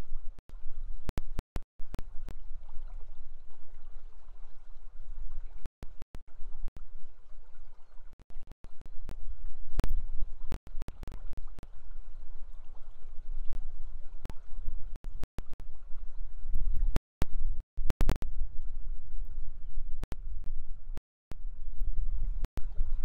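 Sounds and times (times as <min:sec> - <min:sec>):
wind noise on microphone: 0:08.8 - 0:23.0.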